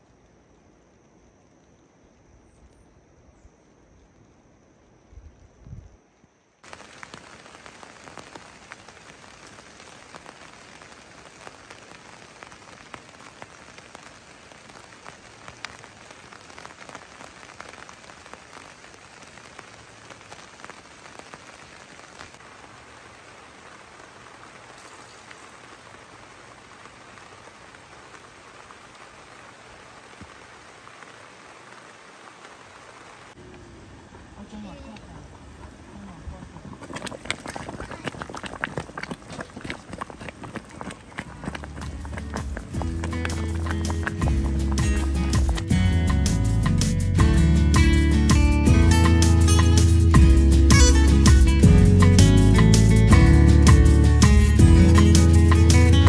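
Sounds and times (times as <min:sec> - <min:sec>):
rain on tent fabric: 0:00.0 - 0:56.0
drops ticking: 0:36.0 - 0:52.7.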